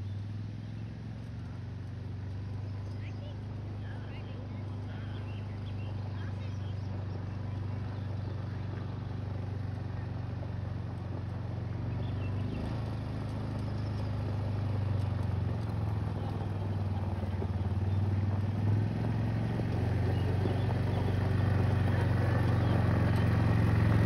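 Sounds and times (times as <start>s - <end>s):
atv engine running: 0.0s - 24.0s.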